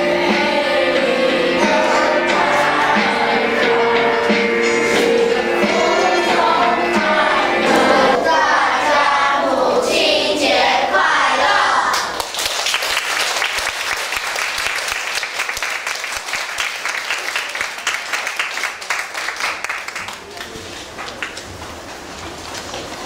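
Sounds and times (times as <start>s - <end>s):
children's choir singing: 0.0s - 12.2s
congregation applause: 11.9s - 21.6s.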